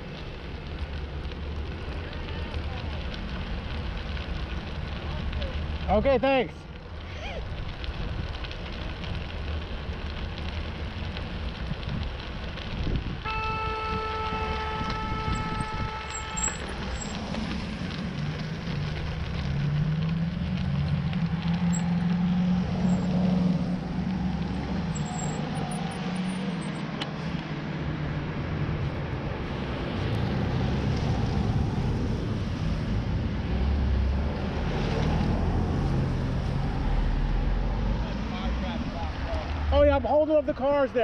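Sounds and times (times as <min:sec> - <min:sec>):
car engines: 0:00.0 - 0:41.0
tyre noise: 0:07.0 - 0:27.3
wind on microphone: 0:12.7 - 0:16.9
steady horn-like tone: 0:13.2 - 0:17.2
low engine hum: 0:14.0 - 0:39.7.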